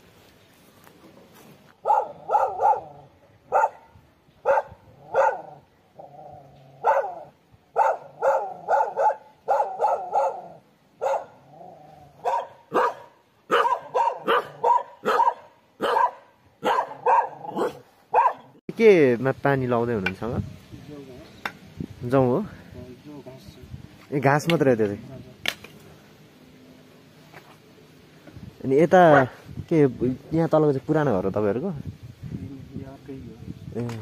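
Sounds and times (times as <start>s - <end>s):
dog barking: 1.8s - 5.6s, 6.8s - 11.4s, 12.2s - 18.6s, 29.1s - 29.4s.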